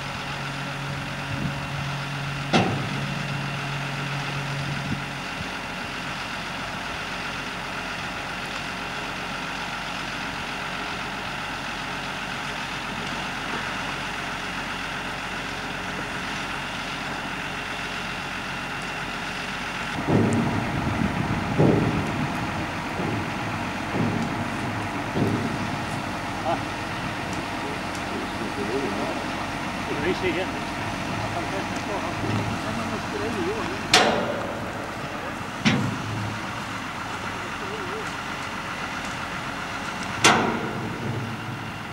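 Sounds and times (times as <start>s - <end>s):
tractor engine idling: 0.0s - 41.9s
uneven low rumbling bursts: 18.4s - 41.9s.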